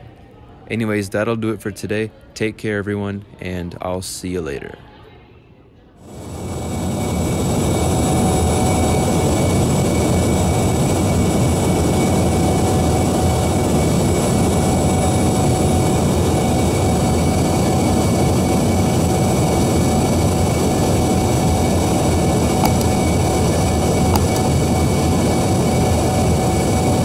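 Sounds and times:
jet engine and airflow roar: 0:06.0 - 0:27.0
thin steady whines: 0:06.0 - 0:27.0.

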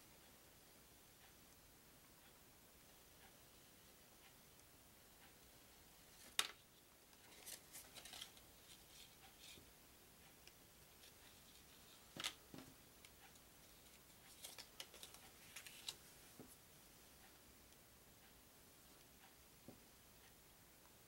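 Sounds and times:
cards rustling and tapping on table: 0:12.1 - 0:12.7.

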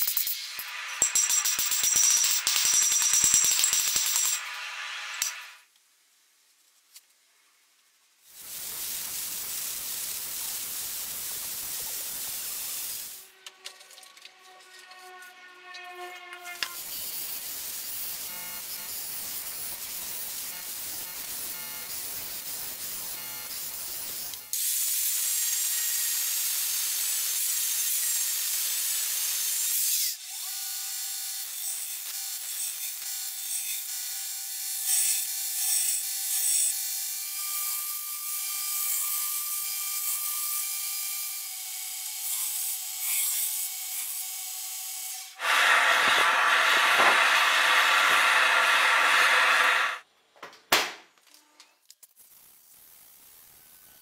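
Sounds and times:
belt grinder grinding steel: 0:34.7 - 0:50.0.

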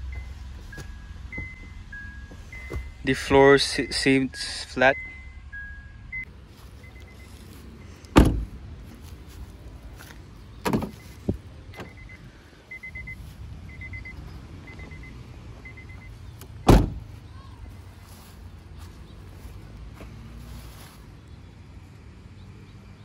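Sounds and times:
car door thumps: 0:08.1 - 0:08.6, 0:10.6 - 0:12.0, 0:16.6 - 0:17.1
faint short beeps: 0:11.8 - 0:16.1.

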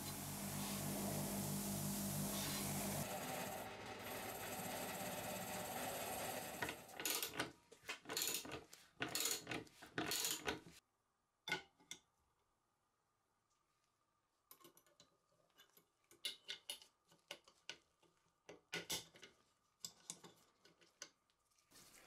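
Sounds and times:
grinder wheel humming and rubbing: 0:00.0 - 0:07.4.

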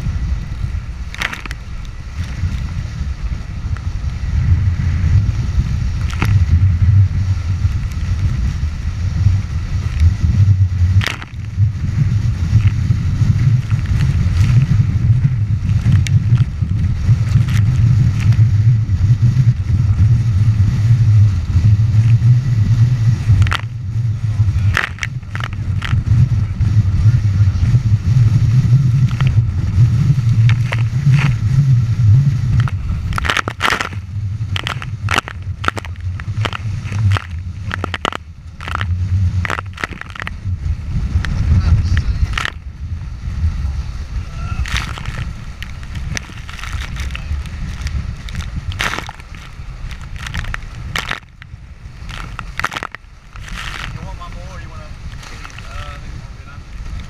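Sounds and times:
wind buffeting microphone: 0:00.0 - 0:57.0
water rushing past hulls: 0:42.2 - 0:57.0.

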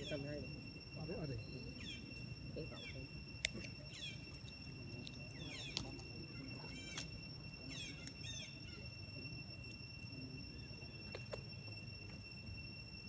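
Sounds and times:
high-pitched insect drone: 0:00.0 - 0:13.0
descending bird chirps: 0:01.2 - 0:09.0.

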